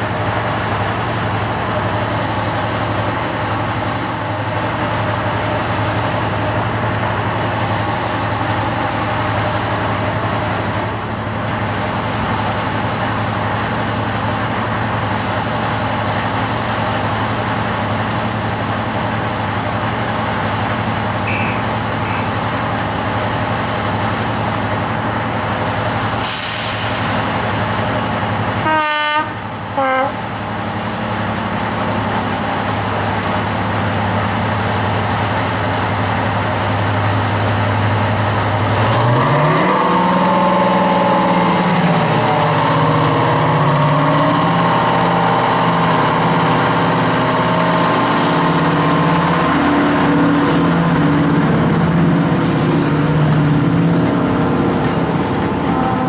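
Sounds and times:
diesel locomotive engines idling: 0.0 - 56.0
locomotive horn blasts: 21.2 - 22.3, 28.6 - 30.2
short hiss: 26.2 - 27.4
locomotive engines revving up: 31.2 - 56.0.

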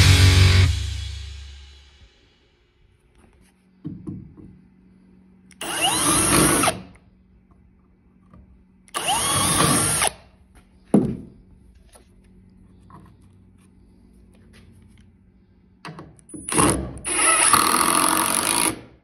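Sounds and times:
cordless drill boring into wood: 5.5 - 6.8, 8.9 - 10.2, 16.5 - 18.9.

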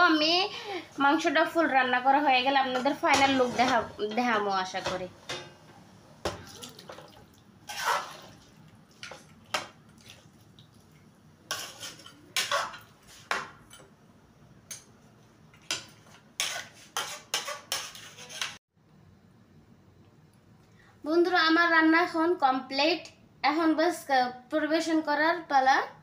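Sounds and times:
metal spoon scraping pot: 7.6 - 8.4, 11.5 - 13.4, 15.7 - 18.6.

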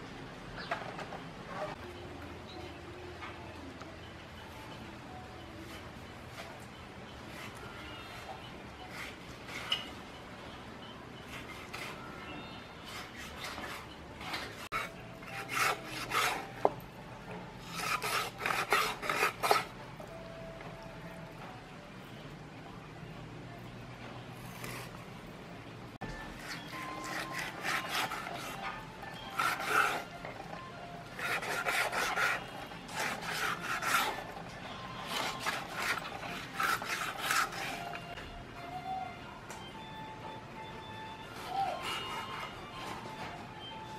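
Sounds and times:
cleaver sawing through raw meat: 12.8 - 16.7, 17.6 - 19.7, 26.3 - 30.2, 31.1 - 38.0.

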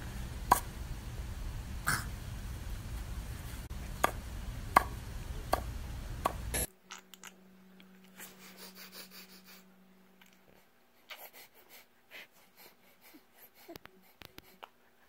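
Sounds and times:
outdoor background rumble: 0.0 - 6.7.

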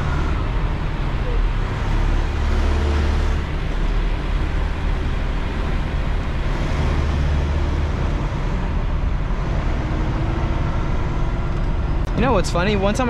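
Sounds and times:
diesel truck engine running: 0.0 - 13.0.

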